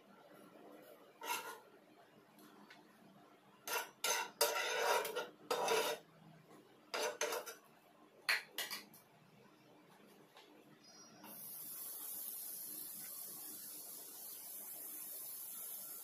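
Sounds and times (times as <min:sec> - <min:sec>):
spatula scraping frying pan: 0:01.2 - 0:01.7, 0:03.6 - 0:06.1, 0:06.9 - 0:07.6.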